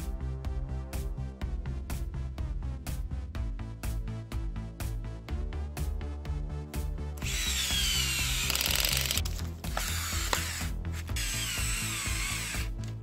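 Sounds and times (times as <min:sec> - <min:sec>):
background music with steady beat: 0:00.0 - 0:13.0
power screwdriver whirring: 0:07.2 - 0:13.0.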